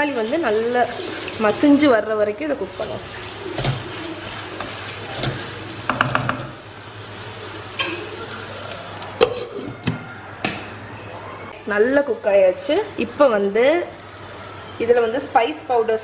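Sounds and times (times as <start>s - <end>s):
wooden spoon scraping a pan: 0.0s - 6.5s
frying sizzle: 0.0s - 9.9s, 11.5s - 16.0s.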